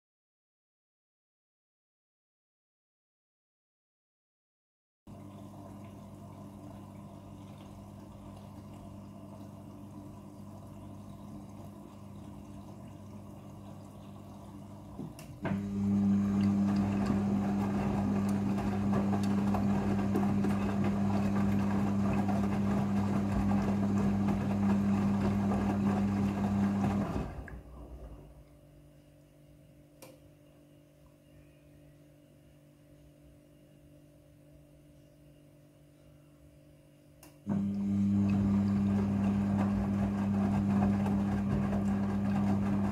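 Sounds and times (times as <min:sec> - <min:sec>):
washing machine filling with water: 0:05.1 - 0:28.6, 0:37.5 - 0:42.9
wet laundry tumbling: 0:11.6 - 0:28.4, 0:37.6 - 0:42.9
washing machine drum turning: 0:14.9 - 0:28.2, 0:37.6 - 0:42.9
click: 0:30.0 - 0:30.2, 0:37.2 - 0:37.4.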